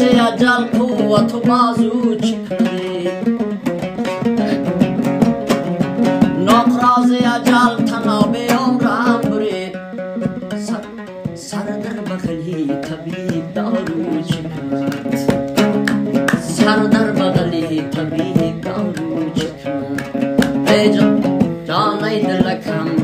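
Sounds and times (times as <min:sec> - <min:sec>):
plucked string melody: 0:00.0 - 0:23.0
sharp percussive strokes: 0:00.0 - 0:23.0.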